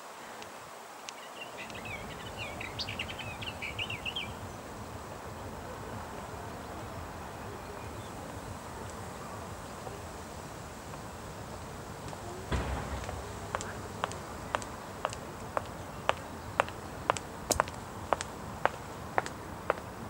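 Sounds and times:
warbler singing: 0:01.1 - 0:19.5.

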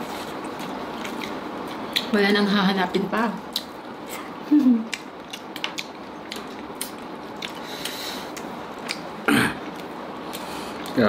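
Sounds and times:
chewing: 0:00.2 - 0:02.1, 0:04.9 - 0:11.0.

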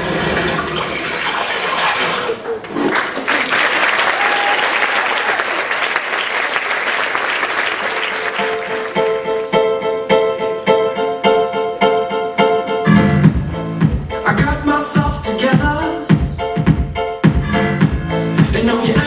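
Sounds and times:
audience applauding: 0:02.3 - 0:09.5
music with repeated pitched note: 0:11.9 - 0:15.3.

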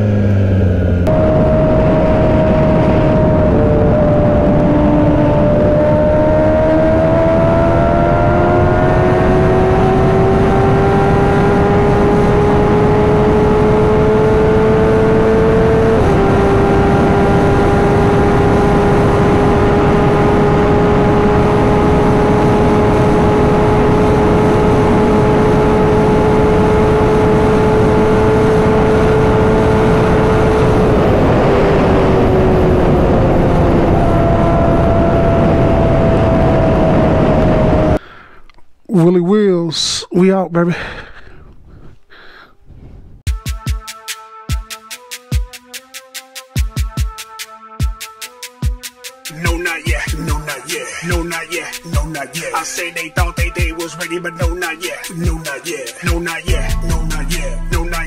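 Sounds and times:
motorcycle engine at high revs: 0:00.0 - 0:38.0
wind noise: 0:00.7 - 0:38.0.

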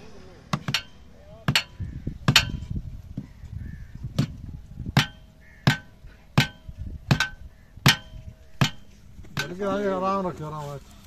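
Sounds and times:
hammer blows on metal: 0:00.5 - 0:02.8, 0:04.1 - 0:09.6.

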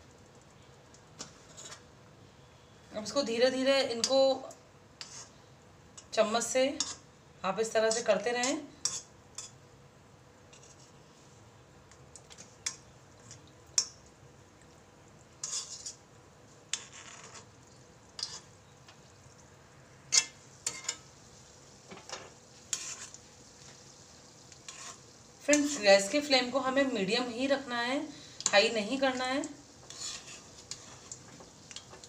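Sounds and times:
faint sizzle: 0:00.0 - 0:32.0
metal spoon scraping an iron pan: 0:05.0 - 0:05.3, 0:15.4 - 0:16.0, 0:20.1 - 0:21.0, 0:22.7 - 0:23.2, 0:24.7 - 0:26.2, 0:29.8 - 0:31.2.

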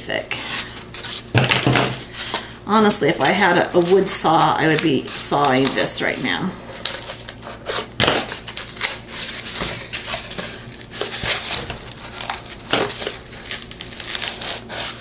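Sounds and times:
cardboard crunching and crackling: 0:00.5 - 0:15.0
scissors cutting cardboard: 0:03.1 - 0:06.2, 0:06.8 - 0:15.0.

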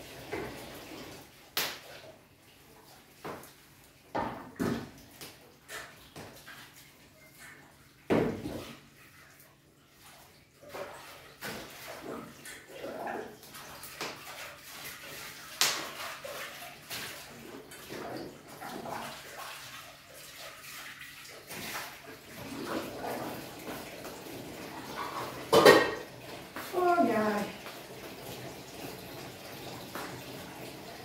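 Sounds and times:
tap water running and splashing: 0:00.0 - 0:31.0
dishes knocking and clinking: 0:24.9 - 0:26.1.

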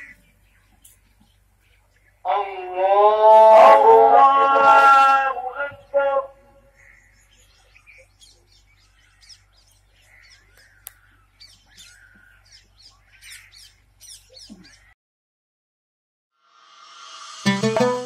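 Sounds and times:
birds chirping: 0:00.0 - 0:02.9, 0:05.3 - 0:15.0
music: 0:16.7 - 0:18.0.

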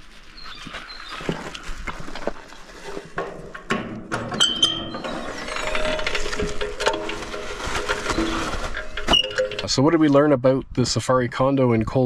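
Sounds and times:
metal bin lid clanking: 0:03.1 - 0:09.7
high squeak: 0:04.4 - 0:06.6.

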